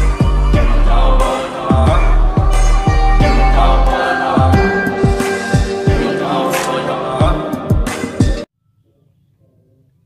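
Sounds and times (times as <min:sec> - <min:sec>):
background music with bass kicks: 0:00.0 - 0:06.2.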